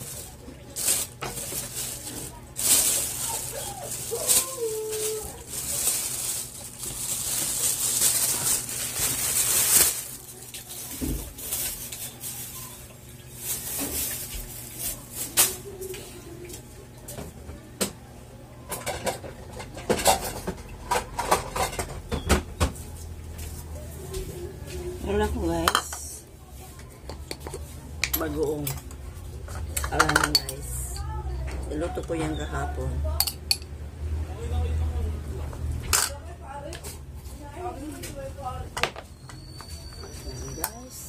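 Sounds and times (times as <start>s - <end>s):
plastic bag rustling: 0.0s - 16.0s.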